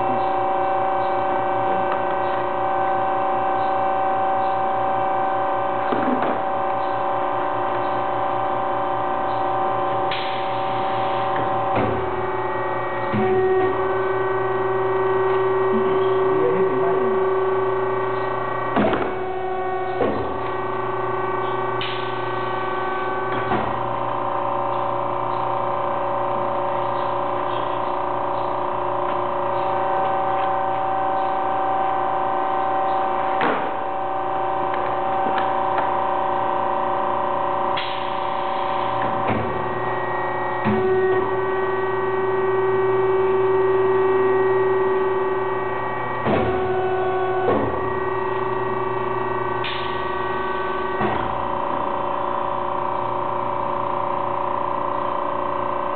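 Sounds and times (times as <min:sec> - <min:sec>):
printing machine humming: 0:00.0 - 0:55.9
machine clunks: 0:11.3 - 0:12.2, 0:18.2 - 0:19.3, 0:19.9 - 0:20.5, 0:39.0 - 0:39.7, 0:46.2 - 0:47.9.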